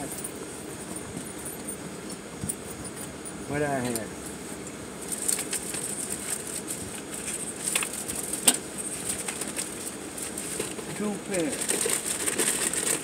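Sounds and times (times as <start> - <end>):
rustling: 5.0 - 13.0.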